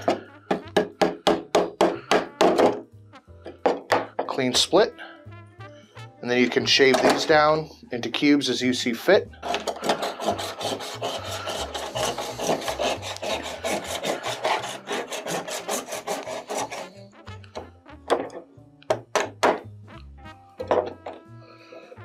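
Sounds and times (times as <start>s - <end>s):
wooden mallet knocking: 0.0s - 2.8s, 17.6s - 19.7s, 20.6s - 21.3s
handsaw rasping through ice: 9.4s - 17.0s.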